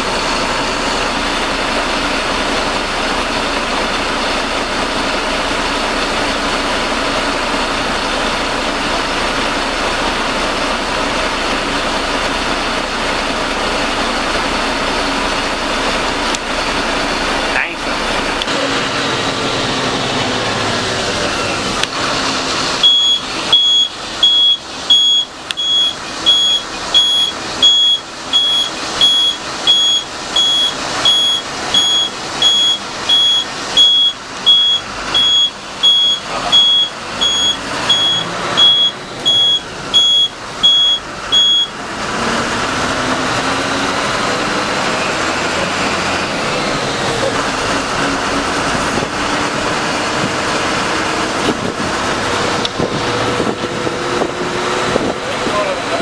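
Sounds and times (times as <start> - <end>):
bus engine and road drone: 0.0 - 56.0
high electronic beeps: 22.8 - 41.8.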